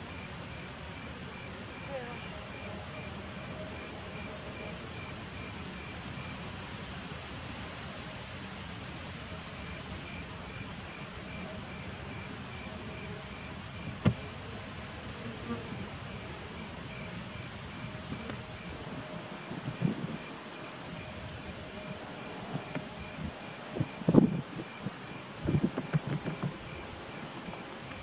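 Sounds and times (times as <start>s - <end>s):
honeybees buzzing: 10.5s - 28.0s.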